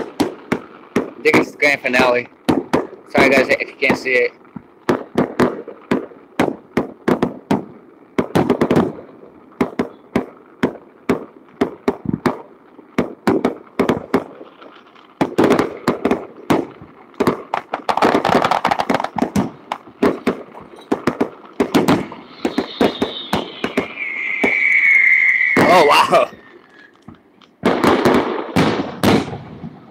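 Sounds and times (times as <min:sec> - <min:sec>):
fireworks bangs: 0:00.0 - 0:29.9
high whine: 0:21.8 - 0:27.1.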